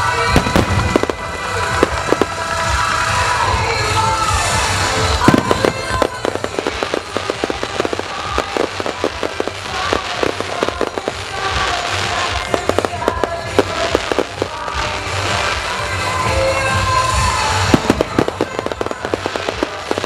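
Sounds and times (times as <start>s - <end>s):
fireworks crackling pops: 0.0s - 20.0s
music playing: 0.0s - 20.0s
firework bang: 0.3s - 2.4s, 5.2s - 11.7s.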